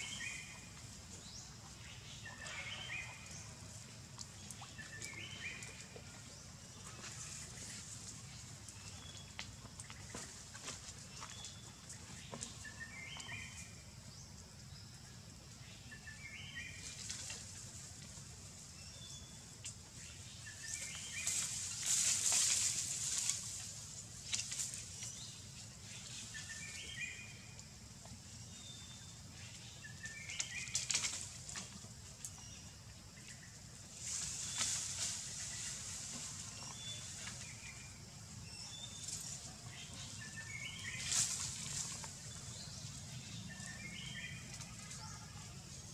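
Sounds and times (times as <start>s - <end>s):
bird singing: 0.0s - 3.6s, 11.2s - 14.9s, 25.0s - 27.6s, 36.6s - 45.9s.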